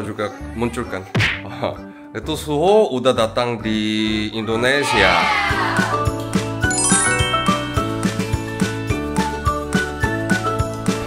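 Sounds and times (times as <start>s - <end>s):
upbeat background music: 0.0s - 11.0s
bright tinkling notes: 6.6s - 9.1s
descending sound effect: 6.7s - 8.5s.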